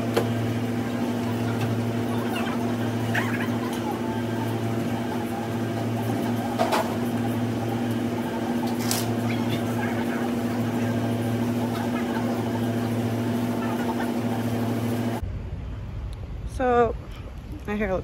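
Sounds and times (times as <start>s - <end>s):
low electrical hum of machinery: 0.0s - 18.0s.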